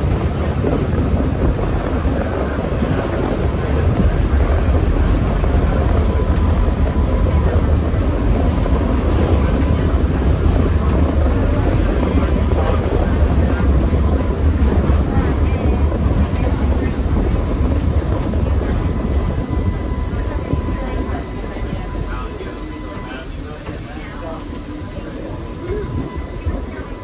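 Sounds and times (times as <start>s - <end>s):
faint steady whine: 0.0s - 27.0s
streetcar wheels rumbling on rails: 0.0s - 27.0s.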